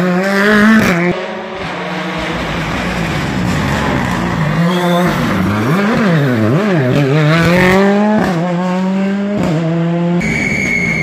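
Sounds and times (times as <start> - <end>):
rally car engine revving: 0.0 - 11.0
high tyre squeal: 3.0 - 6.6, 10.2 - 11.0.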